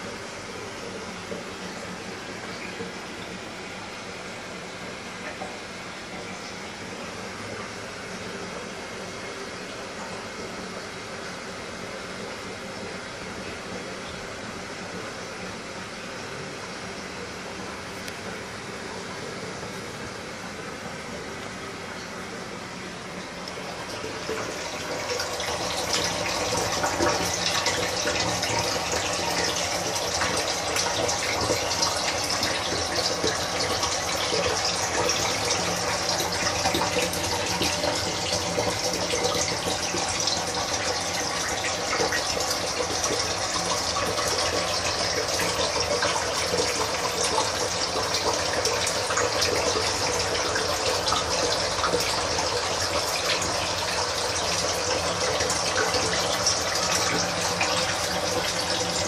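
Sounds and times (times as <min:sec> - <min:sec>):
water pouring into aquarium: 0:00.0 - 0:59.0
water splashing and bubbling: 0:18.4 - 0:59.0.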